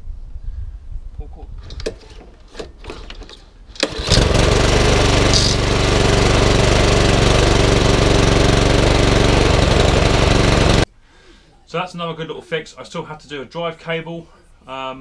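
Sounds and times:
pull-start clicks: 3.8 - 10.8
lawnmower engine running: 3.8 - 10.9.

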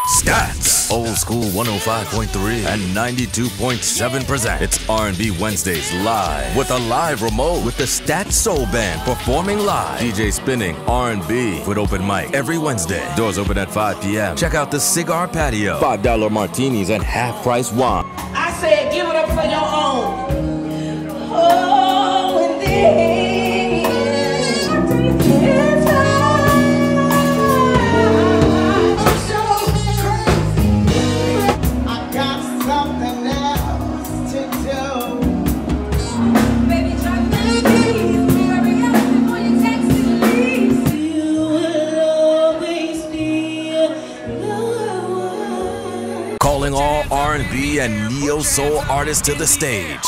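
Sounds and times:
band with keyboards and drums: 0.0 - 50.0
woman singing: 18.8 - 32.6, 36.0 - 46.4.

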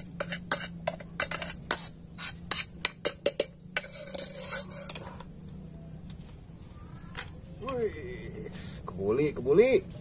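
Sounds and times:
metal pot knocking and scraping: 0.0 - 5.2
high insect drone: 0.0 - 10.0.

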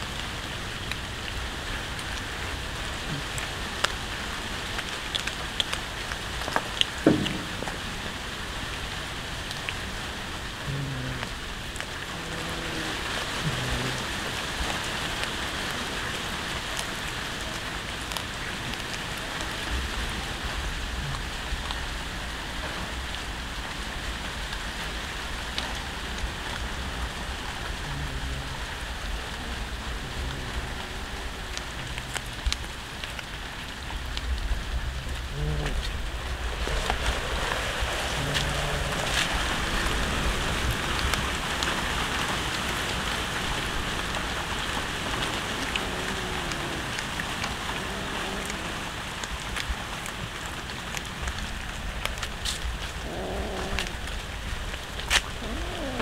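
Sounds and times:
cats chewing raw fish: 0.0 - 56.0
steady hiss: 5.8 - 56.0
low rumble: 25.8 - 41.8.

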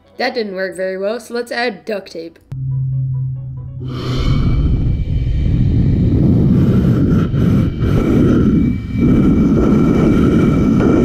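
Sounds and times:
wind rumble on microphone: 3.9 - 11.0.

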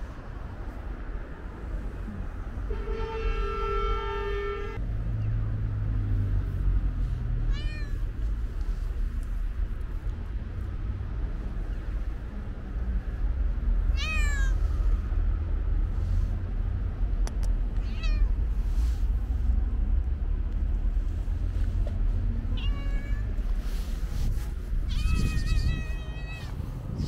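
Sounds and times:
steady low rumble: 0.0 - 2.8, 4.8 - 27.0
cat meowing: 7.5 - 8.1, 13.9 - 14.6, 17.8 - 18.4, 22.5 - 23.4, 24.8 - 26.6
sharp click: 17.2 - 17.6.

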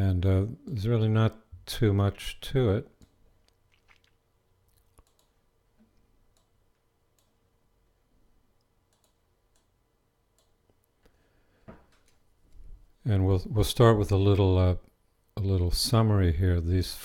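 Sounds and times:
faint steady hum: 0.0 - 17.0
faint clicks: 4.7 - 7.4, 8.6 - 9.7.

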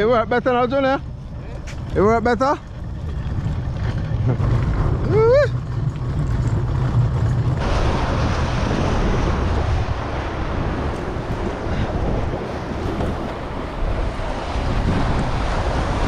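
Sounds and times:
cart wheels rolling on asphalt: 0.4 - 16.0
wind and surf hiss: 7.6 - 16.0.

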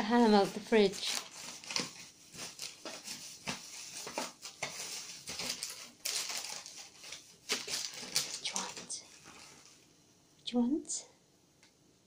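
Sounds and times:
plastic packet clicks and rustles: 0.4 - 9.8.

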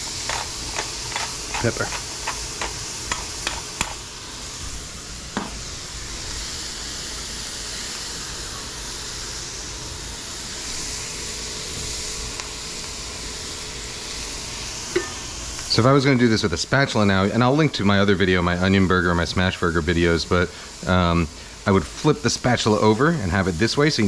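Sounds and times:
patties sizzling on a griddle: 0.0 - 24.0
pepper grinder clicks: 0.3 - 4.0.

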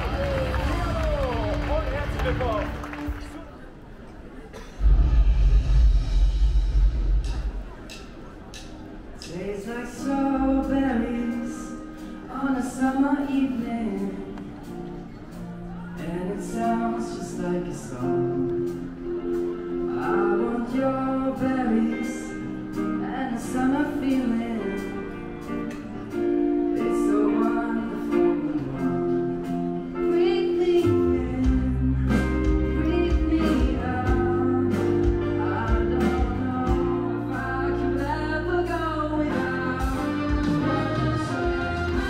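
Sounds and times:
deep bass: 4.8 - 7.8
instrumental backing music: 5.0 - 42.0
man singing pop vocals: 9.3 - 14.6, 16.0 - 18.8, 19.8 - 25.3, 26.8 - 42.0.

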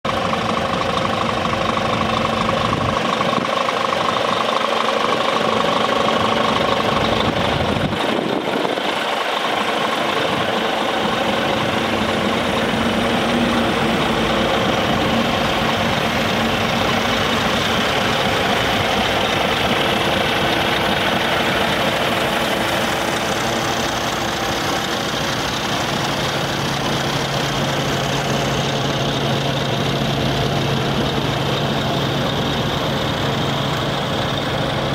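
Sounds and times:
diesel truck engine idling: 0.0 - 34.9.

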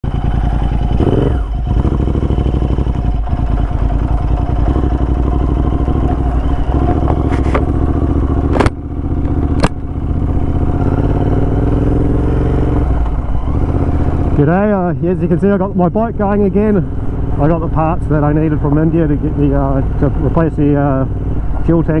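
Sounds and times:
motorcycle engine running: 0.0 - 22.0
sharp click: 8.5 - 9.9.

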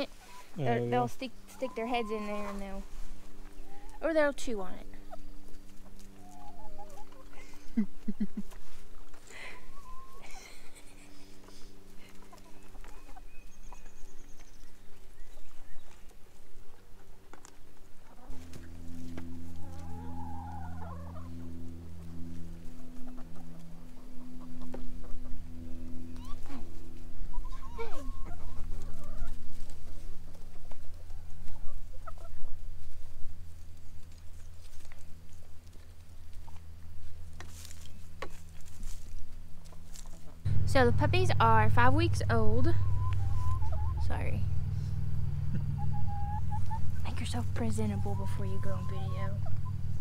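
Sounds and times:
hens clucking: 0.0 - 50.0
steady low hum: 0.0 - 50.0
footsteps on wood-chip mulch: 1.3 - 7.4, 8.0 - 10.5, 11.2 - 41.8
low drone: 18.2 - 31.2, 40.4 - 50.0.

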